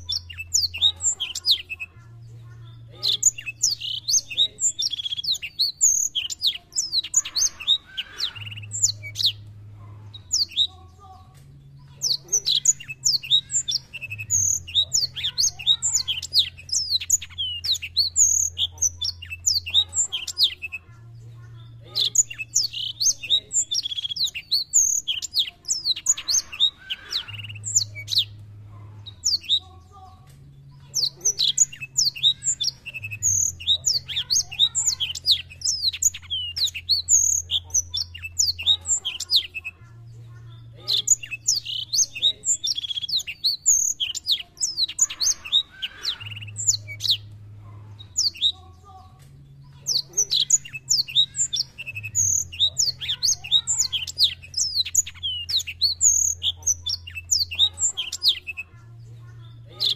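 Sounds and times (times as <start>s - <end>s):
faint low hum: 0.0s - 43.2s
canary singing chirps and trills: 0.0s - 59.9s.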